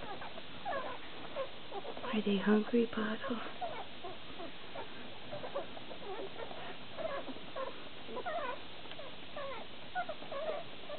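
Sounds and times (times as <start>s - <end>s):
puppies squeaking: 0.0s - 10.9s.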